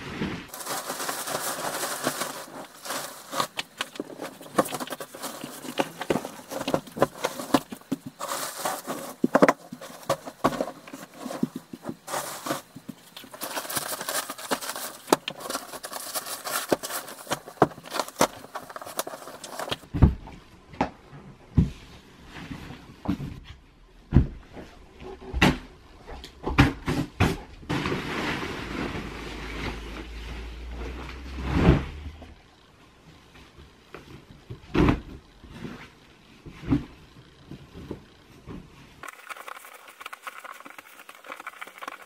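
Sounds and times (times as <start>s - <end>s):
bedding rustling and flapping: 0.0s - 20.0s.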